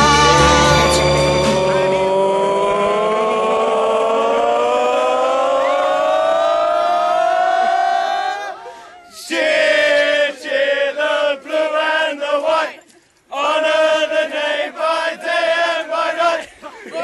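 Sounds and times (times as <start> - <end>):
men chanting in unison: 0.0 - 5.5, 9.2 - 12.8, 13.4 - 16.5.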